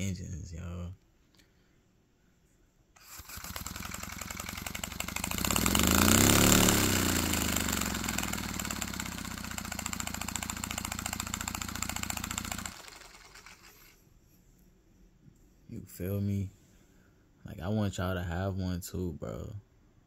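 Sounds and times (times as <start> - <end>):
model air engine puffing: 3.0 - 14.0.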